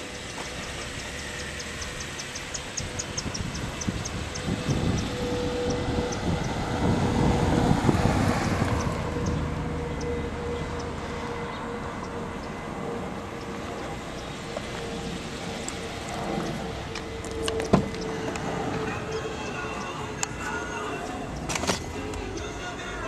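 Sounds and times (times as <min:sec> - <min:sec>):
road traffic noise: 0:00.0 - 0:23.0
vehicle passing: 0:00.0 - 0:23.0.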